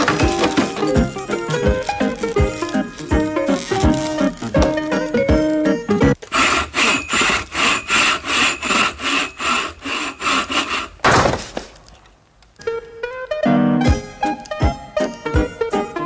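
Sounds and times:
ladder and board crashing: 0.0s - 5.5s, 10.5s - 11.9s
hand saw cutting wood: 6.2s - 11.0s.

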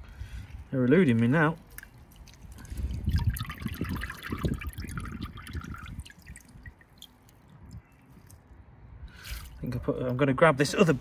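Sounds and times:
water dripping and splashing: 0.5s - 8.6s.

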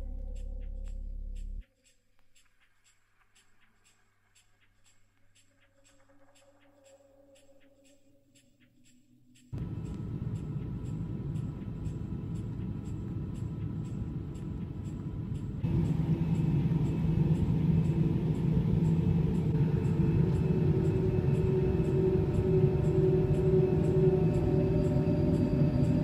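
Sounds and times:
faint high ticks: 0.1s - 26.0s
low mechanical rumble with hum: 9.6s - 26.0s.

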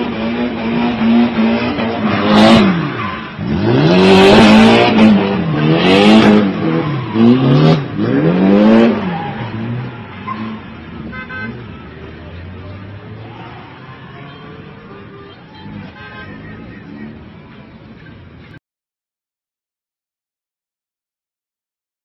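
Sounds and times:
car engine revving hard: 0.0s - 10.7s
tyres screeching: 0.3s - 17.2s.

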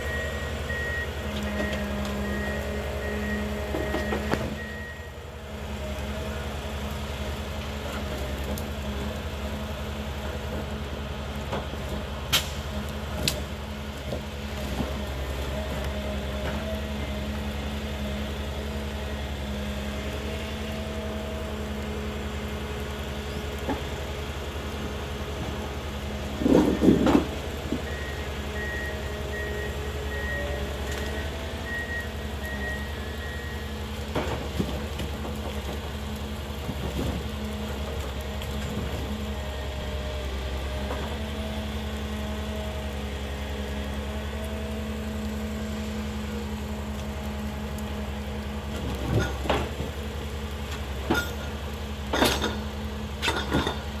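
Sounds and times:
forwarder engine running: 0.0s - 54.0s
hydraulic crane working: 0.0s - 54.0s
heavy wooden clunks of logs: 26.4s - 27.9s.

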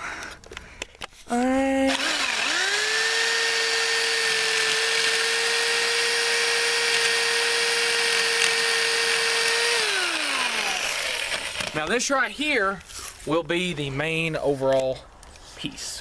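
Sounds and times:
electric jigsaw motor whine: 1.9s - 11.8s
jigsaw blade rasping through pipe: 1.9s - 11.9s.

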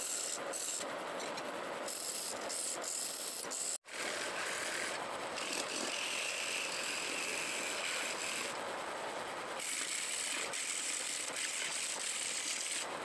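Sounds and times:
gouge scraping wood on lathe: 1.9s - 8.5s, 9.6s - 12.9s.

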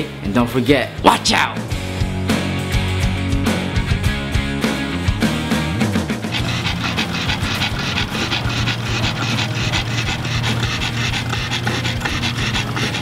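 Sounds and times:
dog panting: 6.3s - 13.0s.

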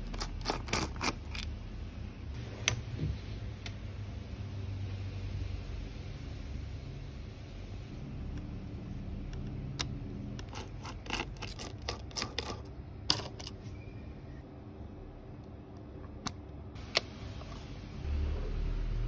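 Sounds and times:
metal tools clicking on laptop parts: 9.3s - 13.6s.

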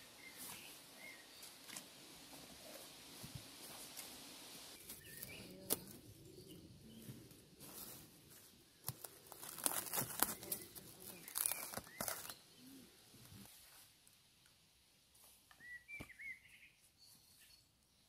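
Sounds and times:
cling film crinkling: 8.9s - 12.4s.

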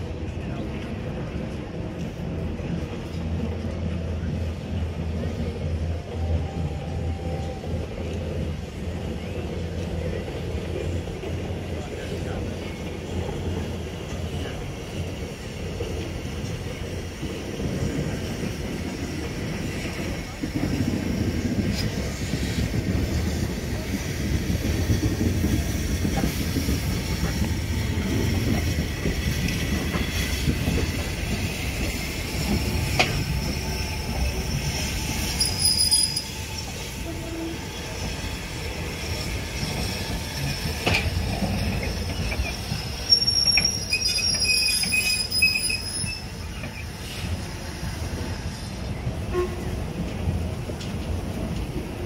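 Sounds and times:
steam locomotive rumbling: 0.0s - 52.0s
high train whistle: 49.3s - 49.8s.

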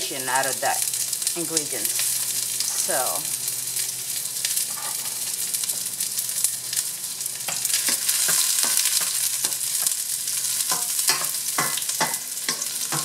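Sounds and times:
garlic sizzling in oil: 0.0s - 13.0s.

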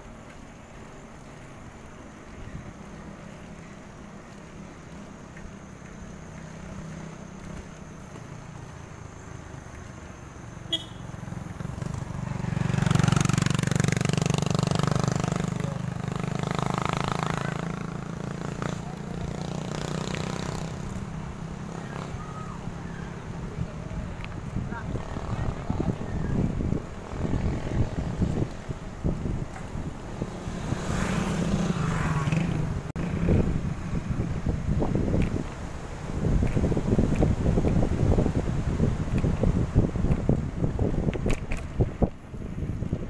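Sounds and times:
motorcycle passing: 0.0s - 43.0s
wind rumble on microphone: 11.4s - 43.0s.

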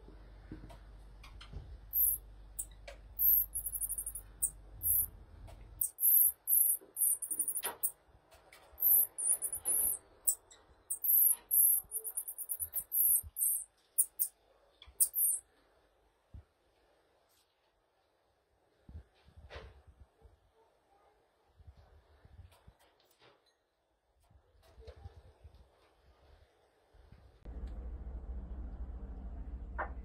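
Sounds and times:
marmosets trilling and chirping: 2.0s - 5.1s, 5.8s - 7.9s, 8.8s - 14.3s, 15.0s - 15.4s.

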